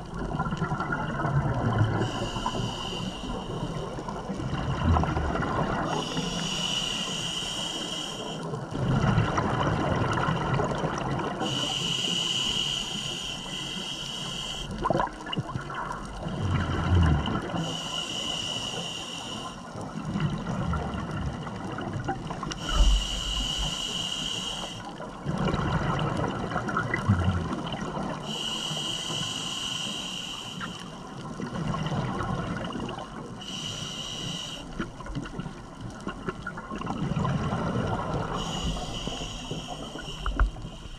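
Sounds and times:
gurgling exhaled bubbles: 0:00.0 - 0:06.5, 0:08.5 - 0:11.5, 0:14.8 - 0:17.7, 0:19.8 - 0:23.6, 0:25.0 - 0:28.4, 0:31.2 - 0:33.4, 0:34.7 - 0:40.9
hissing inhale through regulator: 0:01.8 - 0:04.3, 0:05.7 - 0:08.7, 0:11.4 - 0:14.9, 0:17.4 - 0:19.8, 0:22.4 - 0:25.1, 0:28.1 - 0:31.3, 0:33.4 - 0:35.2, 0:38.1 - 0:40.9.

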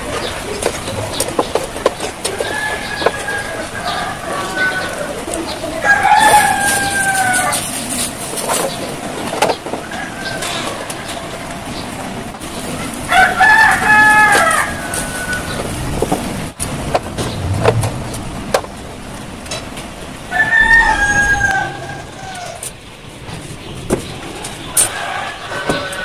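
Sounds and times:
rooster crowing: 0:02.2 - 0:08.0, 0:09.8 - 0:11.1, 0:13.1 - 0:15.8, 0:20.3 - 0:22.8, 0:24.8 - 0:26.0.

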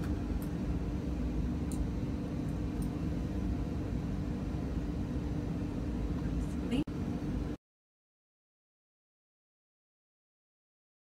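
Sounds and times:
low background hum: 0:00.0 - 0:07.6.

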